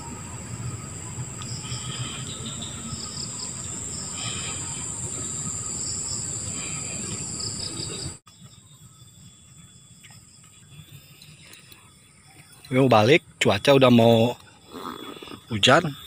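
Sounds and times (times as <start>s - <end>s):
pulsed insect chirping: 0.0s - 16.0s
insects shrilling: 0.8s - 8.2s.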